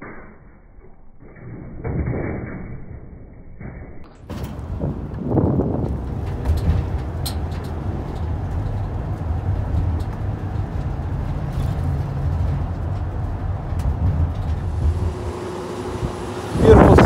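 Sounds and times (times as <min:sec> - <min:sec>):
vehicle engine rumble: 0:04.0 - 0:17.0
tyre road noise: 0:04.1 - 0:17.0.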